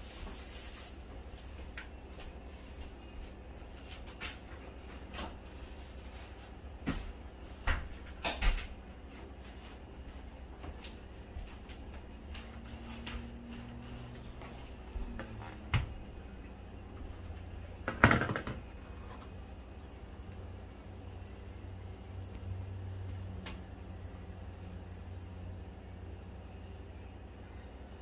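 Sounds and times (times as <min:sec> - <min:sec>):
steady low hum: 0:00.0 - 0:28.0
plastic drain fittings knocking: 0:17.8 - 0:18.6.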